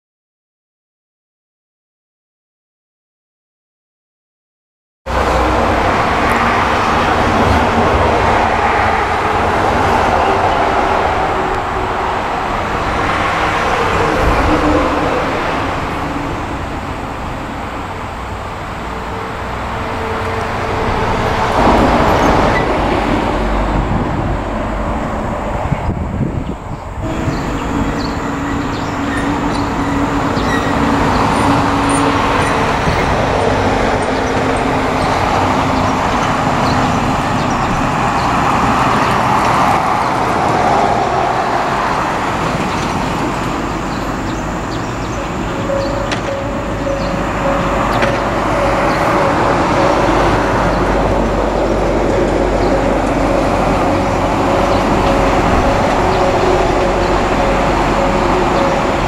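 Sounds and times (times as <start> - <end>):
diesel railcar engine: 5.1 - 59.0
held steady tone: 45.0 - 50.2.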